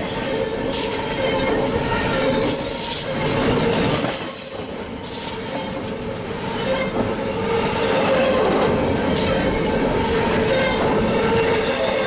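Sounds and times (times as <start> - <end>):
steel wheels rushing on rails: 0.0 - 12.0
high wheel squeal: 9.1 - 12.0.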